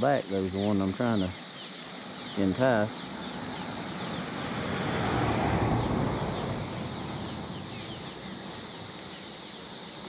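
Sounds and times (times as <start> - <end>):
vehicle passing over bridge: 3.1 - 8.9.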